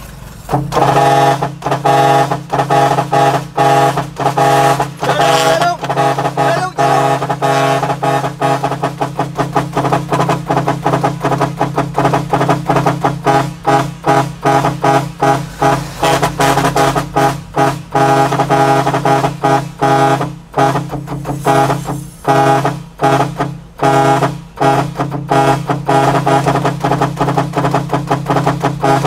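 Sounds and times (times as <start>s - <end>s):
musical air horn tune: 0.4s - 29.0s.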